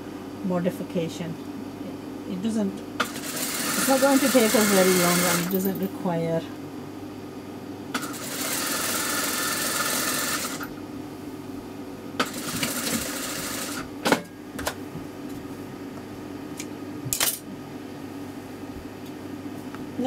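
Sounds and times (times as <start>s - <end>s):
sewing machine stitching: 3.0s - 5.5s, 8.0s - 10.7s, 12.2s - 13.8s
sewing machine motor hum: 3.0s - 5.7s, 7.9s - 10.8s, 12.2s - 13.9s.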